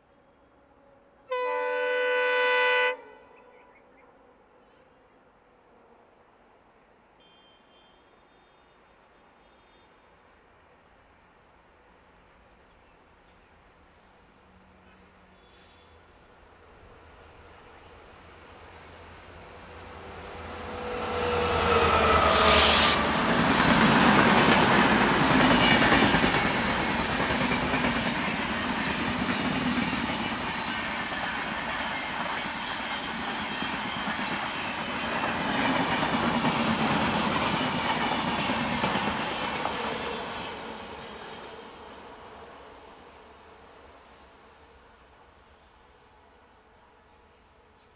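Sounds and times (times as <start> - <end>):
locomotive passing: 16.6 - 42.9
train wheels clattering on rails: 22.9 - 41.4.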